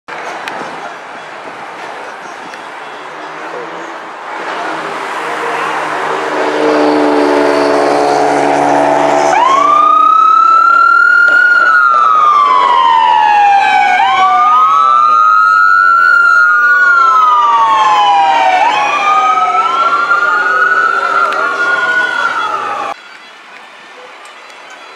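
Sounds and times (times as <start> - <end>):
second siren: 5.3 - 23.0
electronic siren wailing: 5.4 - 23.0.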